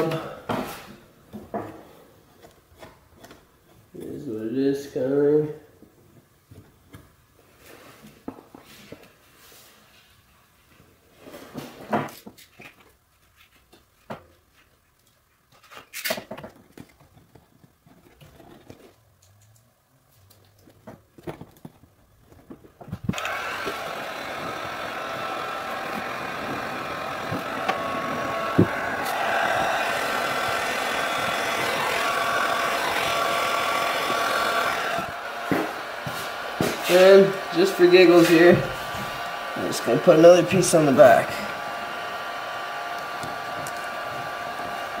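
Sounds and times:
heat gun blower whining: 0:00.0 - 0:00.8, 0:23.1 - 0:45.0.

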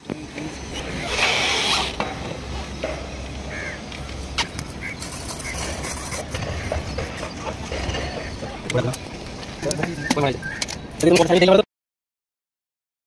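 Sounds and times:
short bird calls: 0:10.0 - 0:10.8.

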